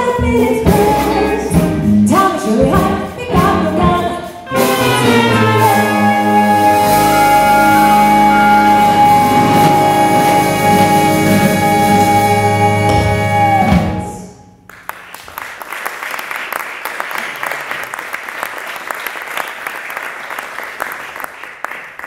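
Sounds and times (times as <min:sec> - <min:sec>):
audience applause: 0:14.7 - 0:22.0.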